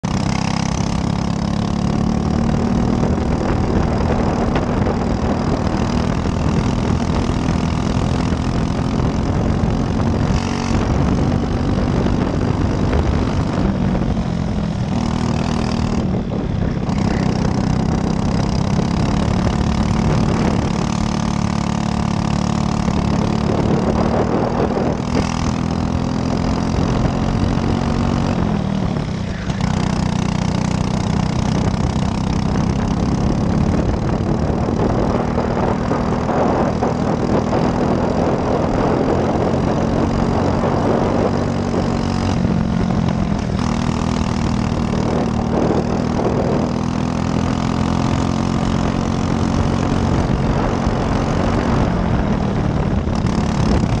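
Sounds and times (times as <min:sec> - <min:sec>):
kart engine revving: 0:00.0 - 0:54.0.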